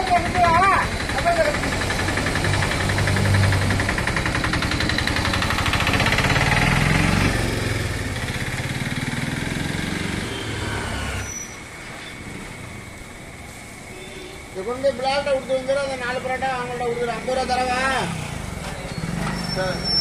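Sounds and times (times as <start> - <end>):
engine running rough: 0.0 - 12.9.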